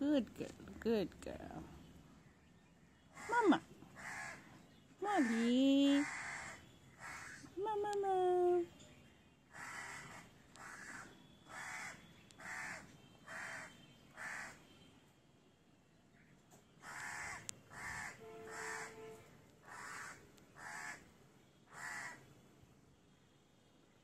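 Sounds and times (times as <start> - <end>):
crow cawing: 4.0 - 4.5, 5.2 - 7.5, 9.5 - 14.6, 16.8 - 21.1, 21.7 - 22.2.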